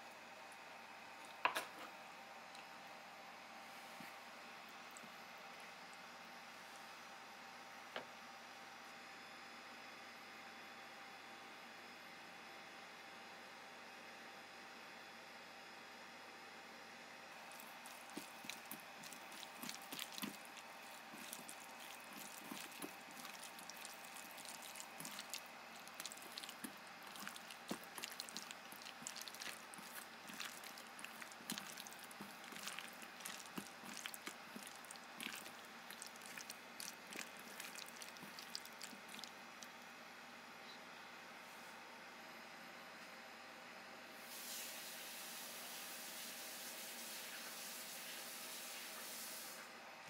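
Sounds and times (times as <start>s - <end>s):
hands squelching in sauce: 17.4s - 39.8s.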